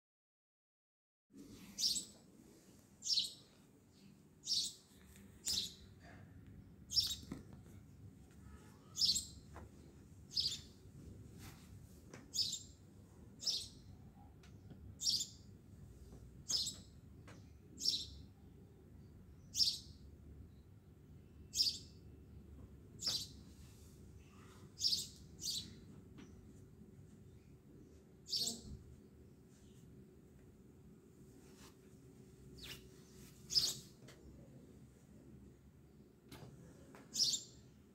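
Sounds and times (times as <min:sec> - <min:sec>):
bird chirping: 0:01.8 - 0:02.2, 0:03.0 - 0:05.9, 0:06.9 - 0:07.3, 0:08.4 - 0:09.4, 0:10.3 - 0:10.8, 0:12.3 - 0:12.8, 0:13.4 - 0:14.3, 0:15.0 - 0:15.5, 0:16.5 - 0:18.4, 0:19.4 - 0:20.0, 0:21.5 - 0:22.0, 0:23.0 - 0:23.4, 0:24.8 - 0:26.4, 0:28.3 - 0:28.7, 0:32.6 - 0:32.8, 0:33.5 - 0:34.0, 0:37.2 - 0:37.6.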